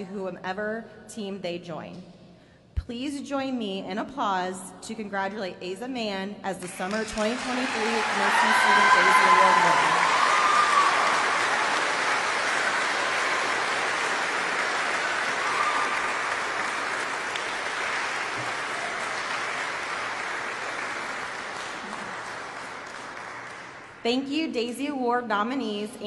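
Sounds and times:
audience applauding: 6.7s - 24.0s.

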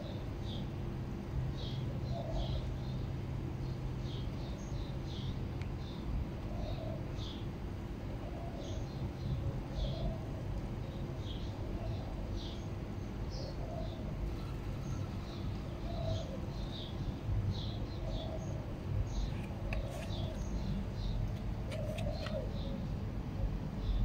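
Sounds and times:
small birds chirping: 1.4s - 24.0s
dove cooing: 2.0s - 2.6s, 6.5s - 7.1s, 8.1s - 8.8s, 9.4s - 11.0s, 13.4s - 16.6s, 21.7s - 23.5s.

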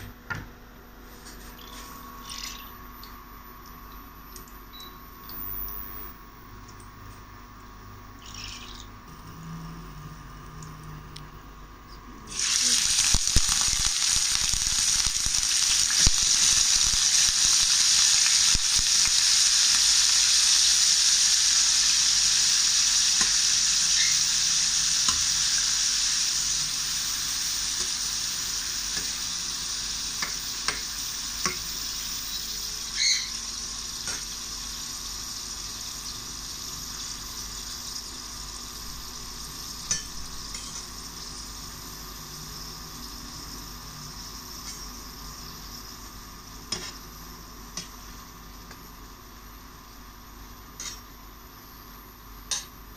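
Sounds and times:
shrimp sizzling in hot oil: 12.3s - 49.2s, 49.8s - 52.8s.

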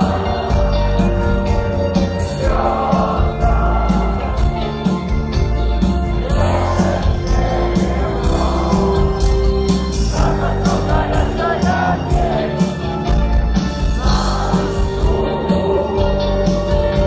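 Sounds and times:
live rock band playing: 0.0s - 17.0s
person singing: 6.2s - 17.0s.

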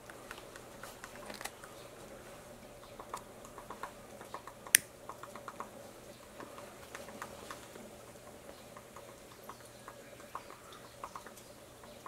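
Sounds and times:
woodpecker tapping on bark: 2.8s - 5.8s, 8.5s - 12.0s.

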